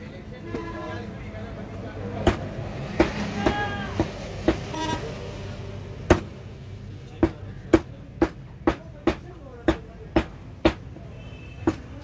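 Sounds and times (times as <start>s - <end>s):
vehicle horn toots: 4.7s - 5.1s.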